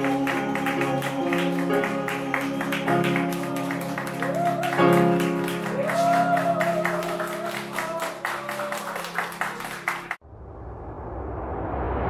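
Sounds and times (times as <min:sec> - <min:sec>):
people clapping in rhythm: 0:00.0 - 0:10.2
rush of noise: 0:10.2 - 0:12.0.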